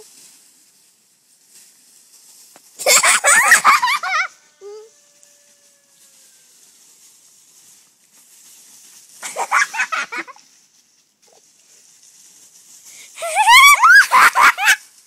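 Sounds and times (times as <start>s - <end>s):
dry leaves rustling: 0.0s - 15.0s
high-pitched laughter: 2.8s - 4.9s, 9.2s - 10.4s, 13.2s - 14.9s.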